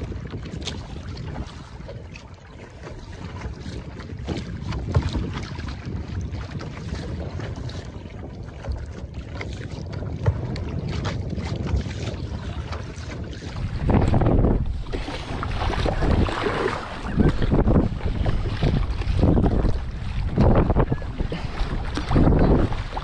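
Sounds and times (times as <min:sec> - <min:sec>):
paddle splashing water: 0:00.0 - 0:23.0
wind rumble on microphone: 0:00.0 - 0:23.0.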